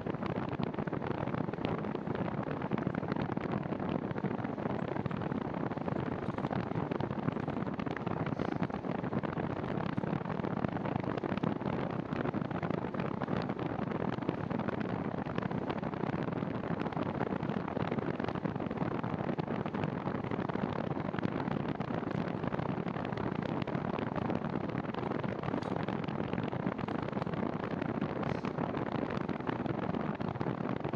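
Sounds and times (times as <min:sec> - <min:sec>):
bicycle tyres rolling on asphalt: 0:00.0 - 0:30.9
wind rushing over microphone: 0:00.0 - 0:30.9.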